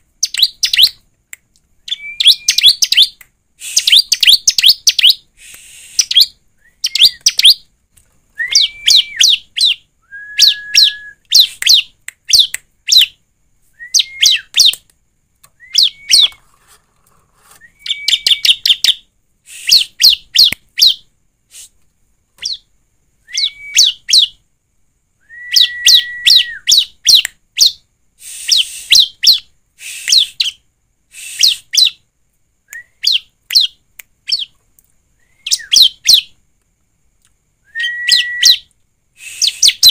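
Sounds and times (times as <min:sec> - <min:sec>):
short low bird whistle: 0:31.2 - 0:31.8, 0:37.7 - 0:39.9.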